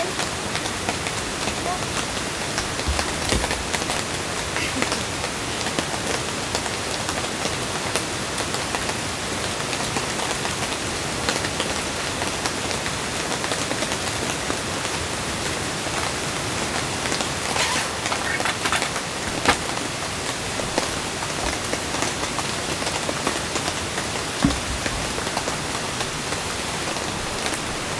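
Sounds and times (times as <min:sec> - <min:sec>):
rain falling on tent fabric: 0:00.0 - 0:27.9
light knocks: 0:24.4 - 0:25.3.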